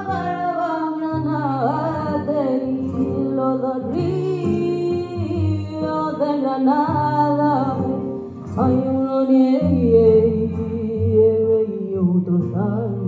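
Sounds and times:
guitar accompaniment: 0.0 - 13.0.

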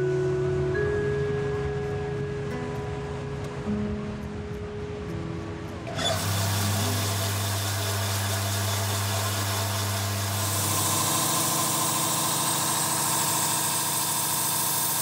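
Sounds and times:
circular saw cutting stone: 5.9 - 15.0.

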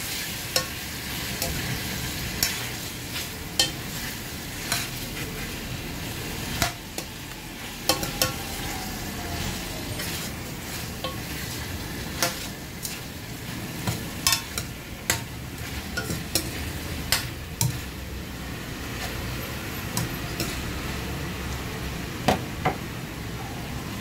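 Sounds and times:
chicken sizzling in a wok: 0.0 - 24.0
metal utensil clanking on wok: 0.5 - 5.0, 7.8 - 8.6, 10.0 - 13.0, 13.8 - 18.0, 19.9 - 20.7.

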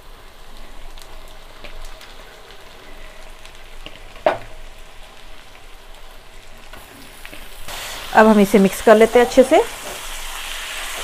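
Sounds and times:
chicken sizzling in hot oil: 0.0 - 11.0.

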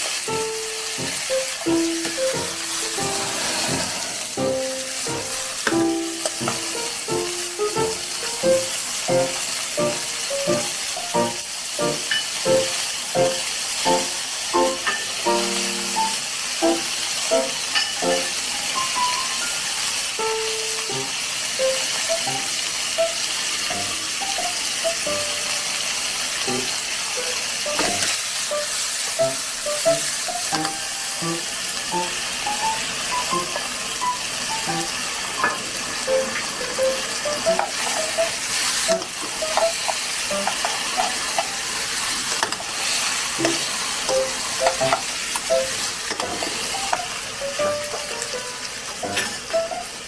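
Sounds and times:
food sizzling in a wok: 0.0 - 50.0
spatula stirring and tapping pan: 5.3 - 7.2, 17.5 - 18.4, 27.7 - 28.2, 29.0 - 31.0, 37.3 - 47.2, 49.1 - 49.5.

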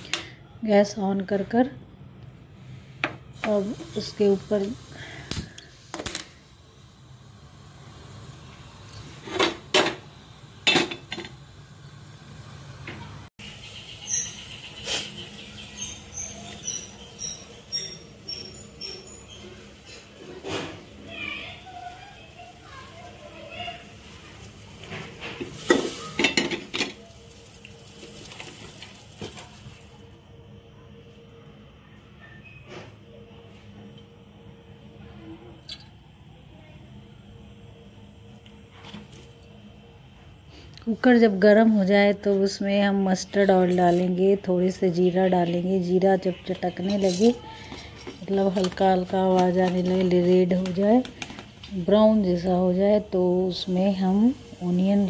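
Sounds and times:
pressure cooker clanking on grate: 8.9 - 11.4, 25.0 - 27.0
utensils clinking on pressure cooker: 10.6 - 12.2, 25.4 - 27.0, 46.4 - 53.1.

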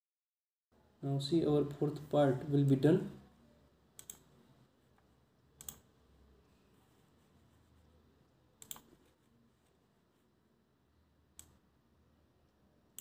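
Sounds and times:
faint computer mouse clicks: 4.0 - 4.3, 5.6 - 5.9, 8.6 - 8.9, 11.4 - 11.6.

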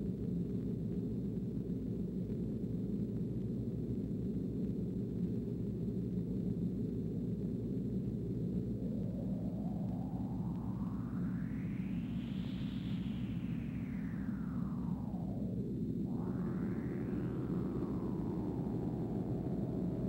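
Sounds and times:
low rumbling drone: 8.5 - 20.0
rising tone: 9.1 - 20.0.

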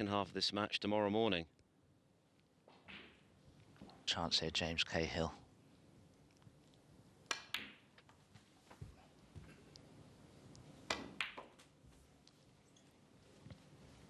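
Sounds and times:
snooker balls clicking together: 7.3 - 8.2, 10.8 - 11.7.

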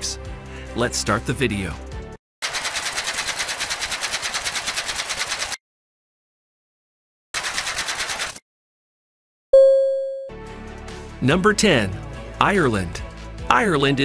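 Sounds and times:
rapid sharp clicking: 2.4 - 5.6, 7.4 - 8.4.

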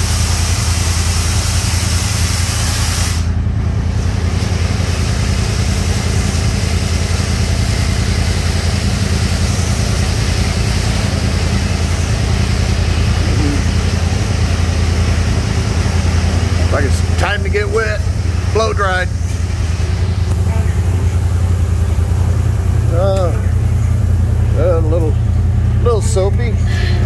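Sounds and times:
water spray hissing: 0.0 - 3.4, 4.8 - 14.1
low machine hum: 0.0 - 27.0.

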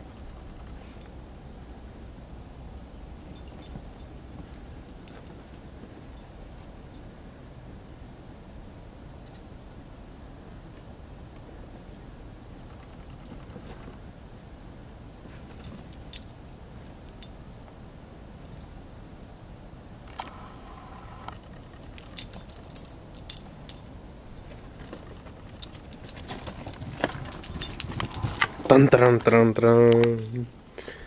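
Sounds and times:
metal collar tags jingling: 3.1 - 7.1, 11.9 - 14.0, 15.3 - 17.4, 21.6 - 30.8.

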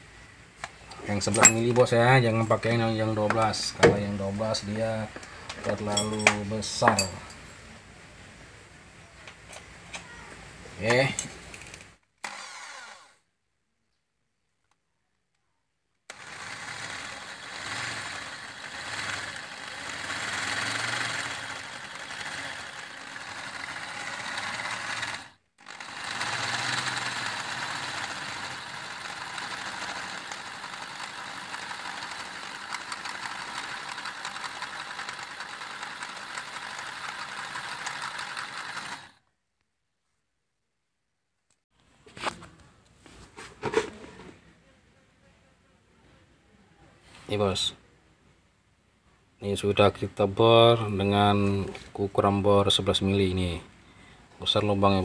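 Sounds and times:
electric drill drilling into steel: 12.2 - 13.2, 16.1 - 39.2.

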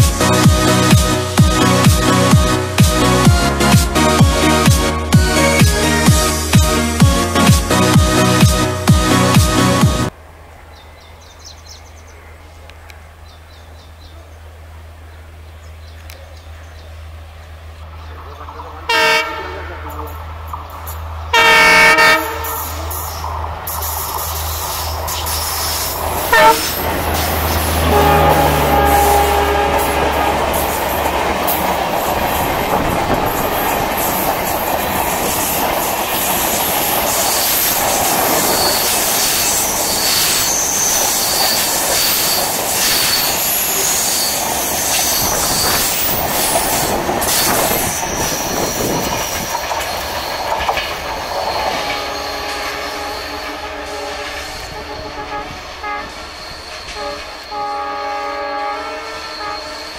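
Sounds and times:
locomotive engine hum: 12.4 - 59.9
train horn blast: 18.8 - 20.2, 21.3 - 22.9, 26.2 - 30.7, 51.7 - 59.9
wheels clacking over rail joints: 19.9 - 57.6
high wheel squeal: 21.5 - 59.9.

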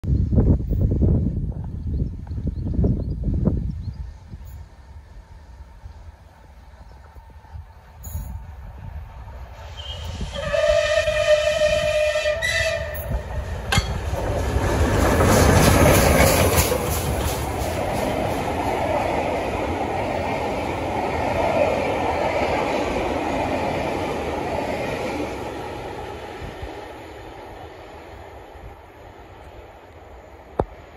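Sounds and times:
wheels rumbling on track: 0.3 - 30.9
train rushing past: 4.0 - 30.9
steam locomotive whistle: 9.6 - 13.5.

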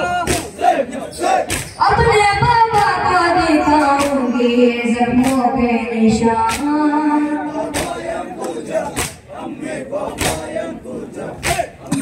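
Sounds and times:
group of voices chanting: 0.0 - 4.4, 6.5 - 12.0
chest-beating slaps: 0.2 - 0.6, 1.4 - 1.8, 3.8 - 4.2, 5.2 - 5.5, 6.5 - 6.8, 7.7 - 9.3, 10.1 - 10.5, 11.4 - 11.7.

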